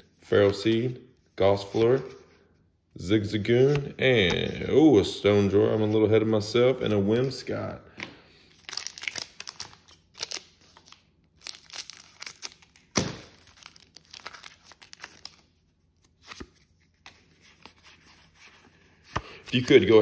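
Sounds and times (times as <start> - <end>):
foil wrapper tearing and crinkling: 8.6 - 15.4.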